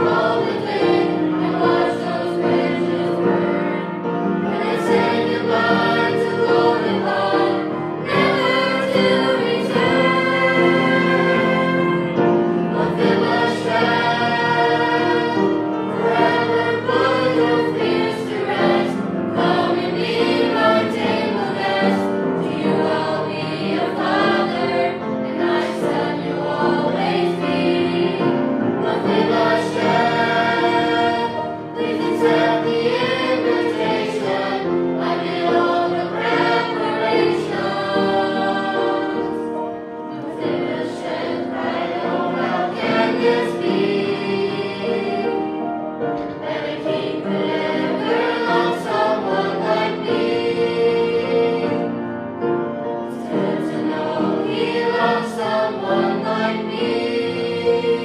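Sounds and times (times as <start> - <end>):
choir singing a hymn: 0.0 - 58.0.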